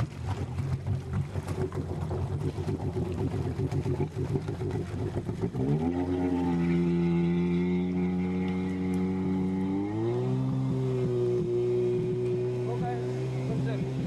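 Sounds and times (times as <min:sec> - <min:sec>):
jet ski engine revving: 0:00.0 - 0:14.0.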